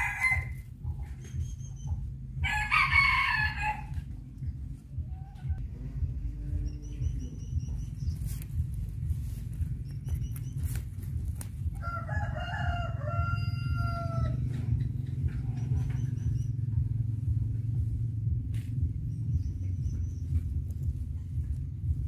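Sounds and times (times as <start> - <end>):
rooster crowing: 0.0 - 0.6, 2.4 - 4.0, 11.8 - 14.7
low rumble: 0.0 - 22.0.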